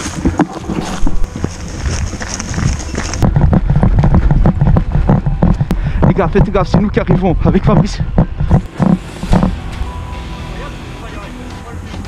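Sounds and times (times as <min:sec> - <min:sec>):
running footsteps on dirt trail: 0:00.0 - 0:09.5.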